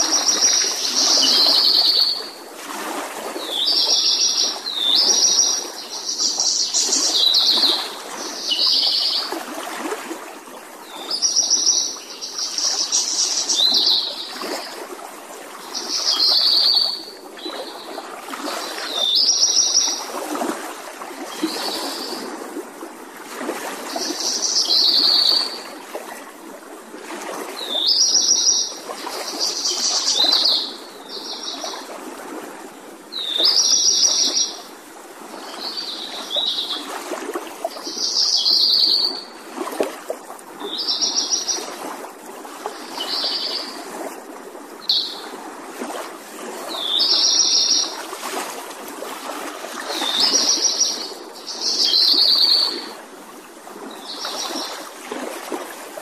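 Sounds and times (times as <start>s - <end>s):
songbird trilling: 44.9s - 45.2s.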